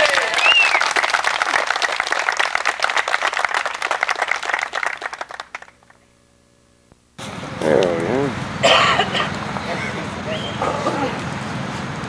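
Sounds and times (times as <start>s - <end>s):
crowd applauding: 0.0s - 5.9s.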